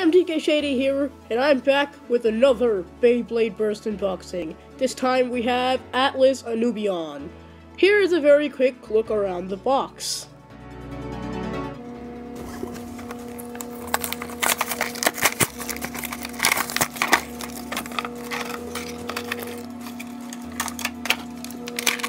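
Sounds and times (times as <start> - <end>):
background music: 0.0 - 22.0
plastic blister pack crackling: 12.3 - 22.0.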